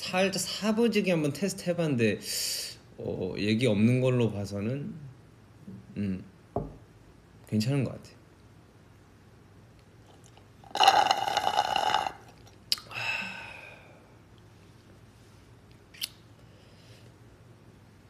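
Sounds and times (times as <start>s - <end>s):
slurping through a straw: 10.1s - 12.4s
short breath: 12.9s - 14.1s.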